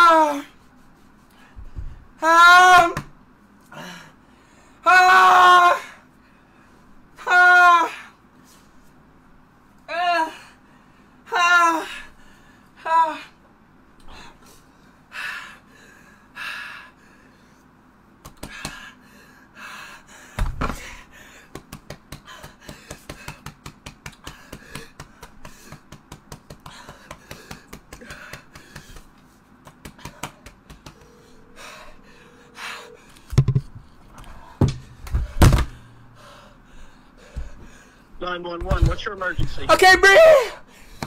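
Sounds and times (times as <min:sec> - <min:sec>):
man gasping and panting: 0:24.2 - 0:29.2, 0:33.9 - 0:38.1
heavy thumps: 0:33.3 - 0:36.4, 0:38.5 - 0:39.6.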